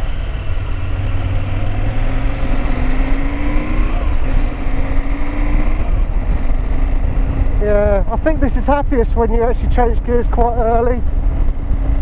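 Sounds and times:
motorcycle engine accelerating: 0.0s - 12.0s.

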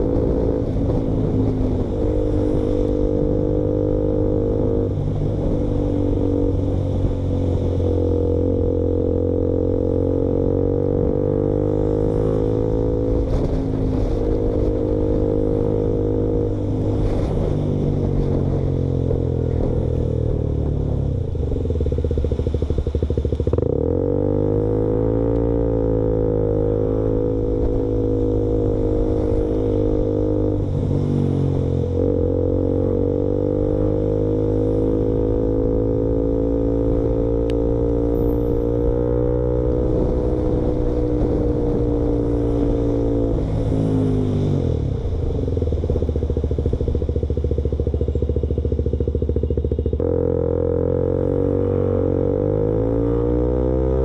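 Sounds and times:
loud motorcycle engine revving: 23.1s - 54.0s.

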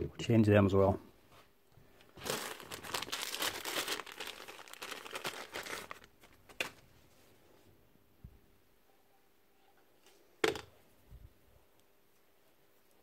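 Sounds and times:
plastic bag crinkling: 2.1s - 6.8s.

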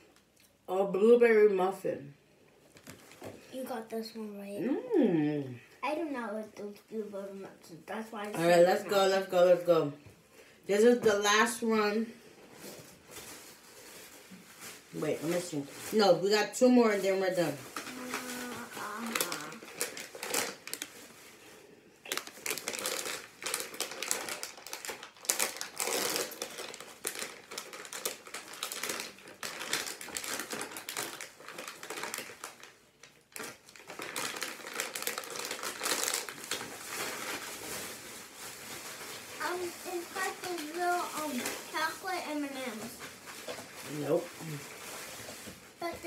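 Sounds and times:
snack packaging crinkling: 17.0s - 46.0s.

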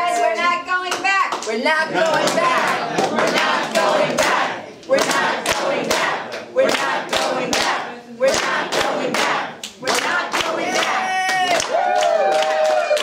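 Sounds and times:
crowd chanting in unison: 1.8s - 11.2s
hands clapping in time: 5.0s - 13.0s.

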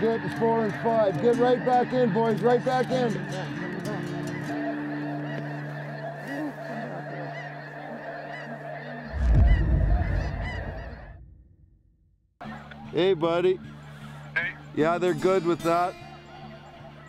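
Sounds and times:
geese honking: 0.0s - 11.2s
deep boom: 9.1s - 12.3s.

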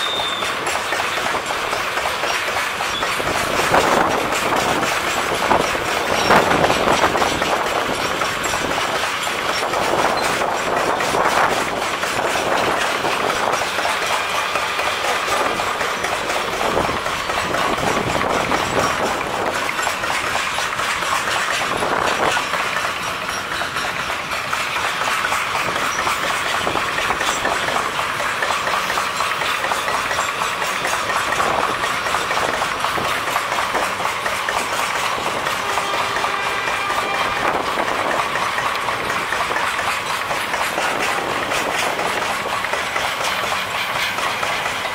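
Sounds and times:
freight train wheels clattering: 0.0s - 44.9s.

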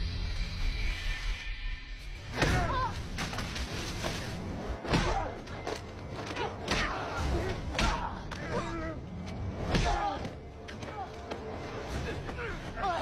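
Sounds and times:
low background music: 1.8s - 13.0s.

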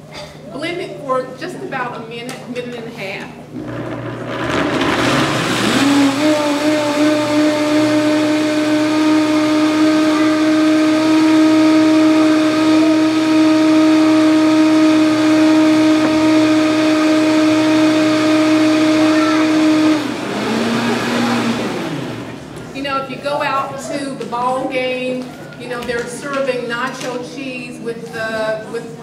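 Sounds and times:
blender motor whine: 3.5s - 22.7s.

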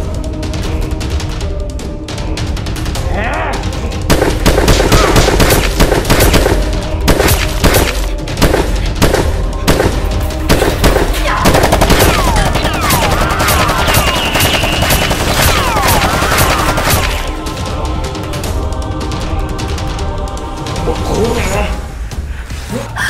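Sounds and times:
background music: 0.0s - 23.0s
machine-gun fire bursts: 4.1s - 17.4s.

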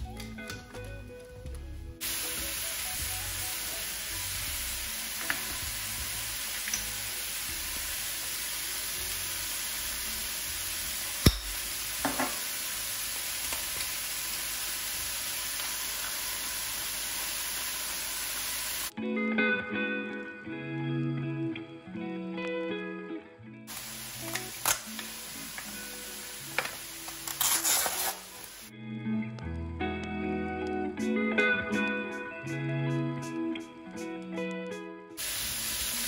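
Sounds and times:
vegetables sizzling in a frying pan: 2.0s - 18.9s, 23.7s - 28.7s, 35.2s - 36.0s.

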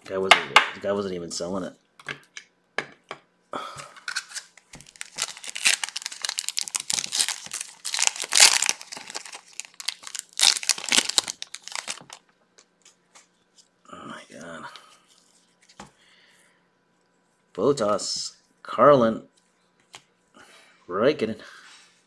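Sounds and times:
foil wrapper crinkling and tearing: 4.1s - 12.2s.

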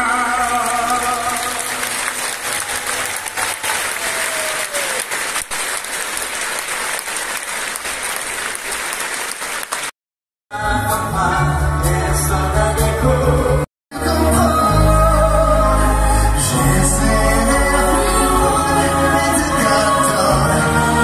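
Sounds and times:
audience applauding: 0.2s - 9.9s
band music: 10.5s - 21.0s.

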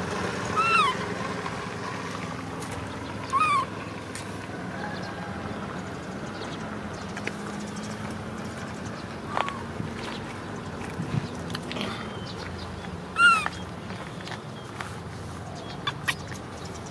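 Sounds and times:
baby monkey high calls: 0.5s - 1.1s, 3.2s - 3.8s, 13.1s - 13.7s.

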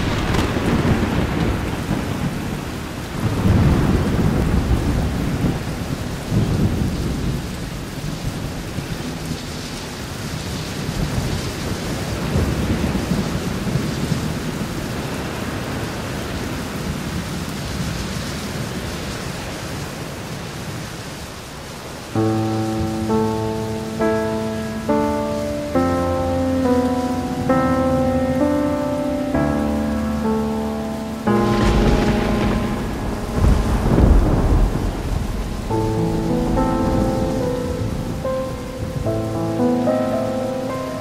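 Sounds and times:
thunder rumbling: 0.0s - 9.5s, 22.2s - 41.0s
steady rain: 0.0s - 41.0s.

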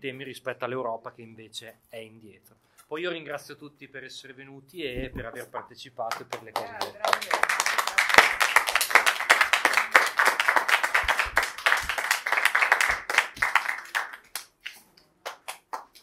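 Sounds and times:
audience applauding: 6.1s - 14.6s.

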